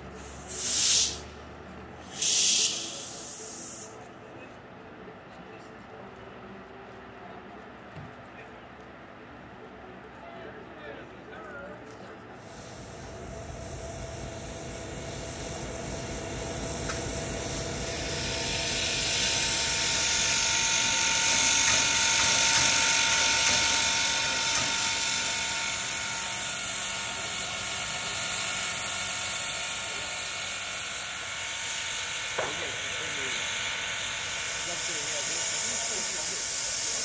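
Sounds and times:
steam train rolling by: 0.0 - 4.0, 12.4 - 37.0
steam hiss: 0.1 - 1.3, 2.0 - 4.0, 12.4 - 37.0.

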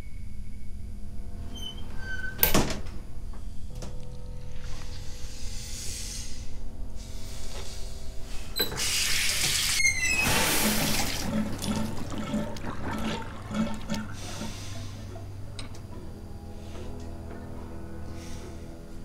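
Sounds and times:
tap water running into sink: 9.4 - 14.2.

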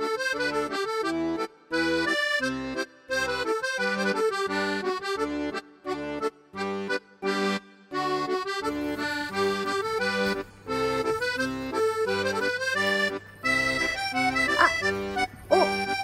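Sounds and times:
instrumental music with bouncy chords: 0.0 - 16.0
budgerigar chirps: 13.5 - 16.0.

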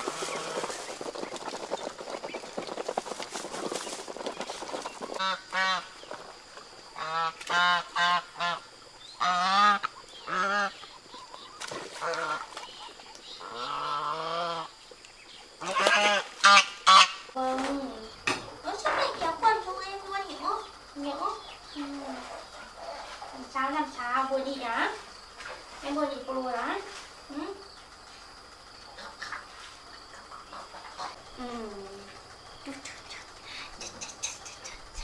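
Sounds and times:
ducks quacking: 0.0 - 6.3, 6.9 - 14.8, 15.6 - 17.4, 28.9 - 31.3
rustling and clicking: 0.0 - 7.6.

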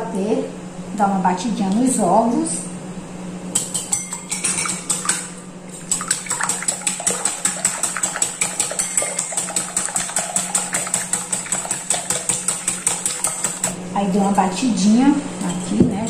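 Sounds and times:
liquid egg sloshing: 4.3 - 13.7
utensil clicking against bowl: 5.9 - 13.8.

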